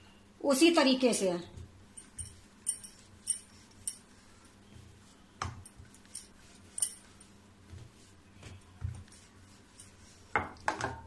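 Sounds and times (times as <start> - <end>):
rolling pin thumping on dough: 10.3 - 11.0.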